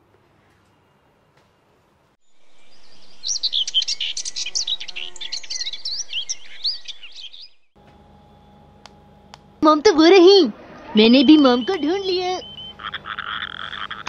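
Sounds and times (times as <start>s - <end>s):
birds chirping and whistling: 2.3s - 7.7s, 11.0s - 13.8s.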